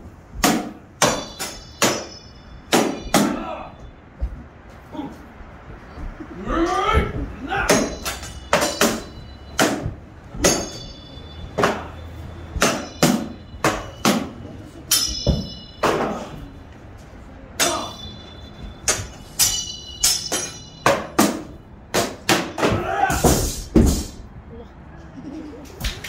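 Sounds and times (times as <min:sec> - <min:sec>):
metal-on-metal clanks: 0:01.0 - 0:03.4, 0:07.7 - 0:16.5, 0:17.6 - 0:22.8.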